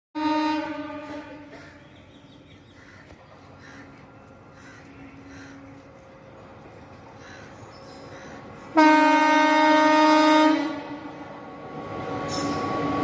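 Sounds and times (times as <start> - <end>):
train horn: 0.2 - 2.0, 8.7 - 11.2
faint steady horn tone: 0.2 - 2.9, 8.6 - 11.2
crows cawing: 2.5 - 6.1, 7.0 - 8.8.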